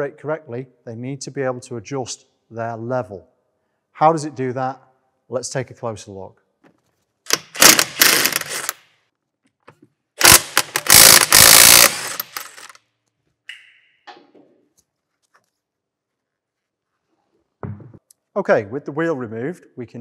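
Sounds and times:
impact wrench hammering: 7.3 - 8.8, 10.2 - 12.8.

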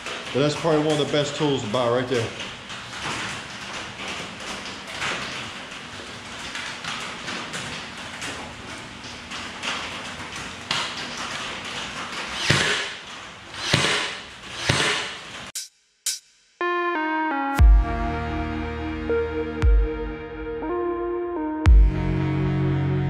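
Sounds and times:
nail gun shots: 12.3 - 15.5.

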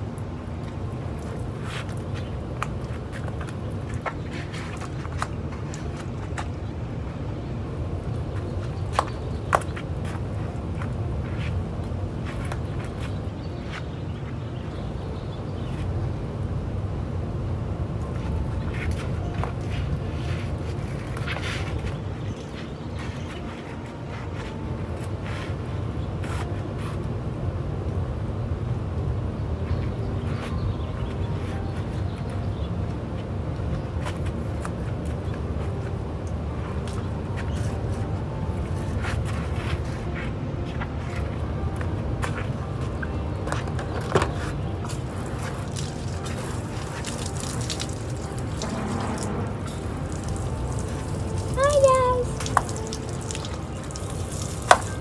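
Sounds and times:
steady low rumble: 44.5 - 51.6
hose water spraying on truck: 45.1 - 55.0.

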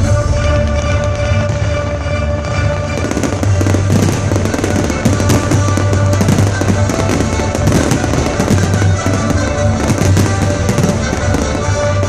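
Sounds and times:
show music over loudspeakers: 0.0 - 12.0
fireworks bangs: 0.9 - 12.0.

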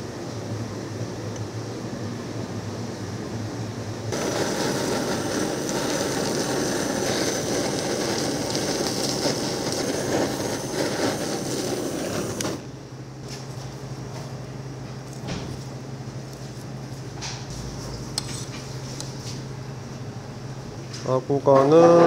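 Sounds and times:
low fan hum: 0.0 - 22.0
blowtorch flame hissing: 4.1 - 12.9.

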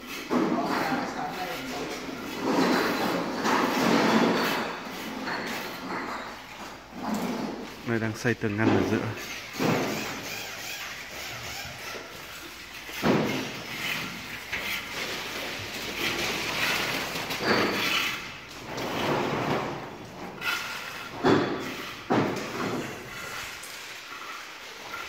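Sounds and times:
scraping and rattling: 0.0 - 25.0.

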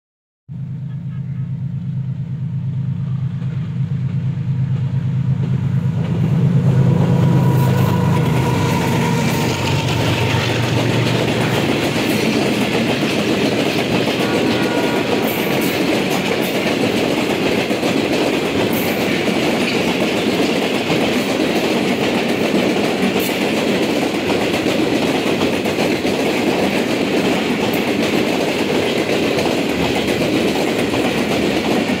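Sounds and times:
locomotive engine drone: 0.5 - 19.6
train wheels rumbling and clattering: 2.0 - 32.0
train wheel clicks: 7.7 - 32.0.

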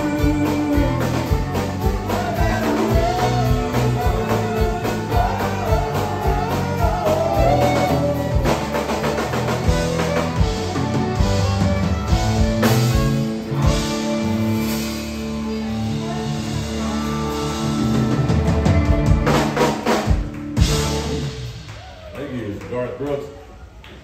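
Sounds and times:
man singing: 0.0 - 8.9
fiddle: 0.0 - 19.9
drum kit beat: 0.0 - 22.1.

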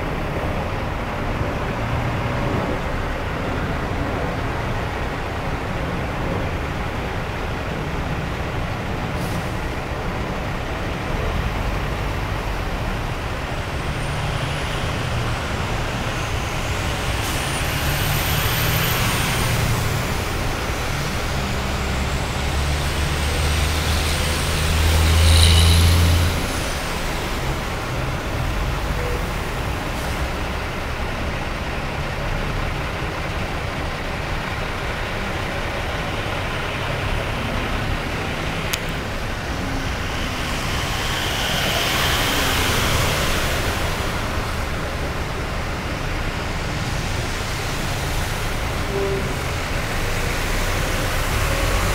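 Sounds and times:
freeway traffic rumble: 0.0 - 51.9
trucks throwing spray: 36.6 - 51.9.

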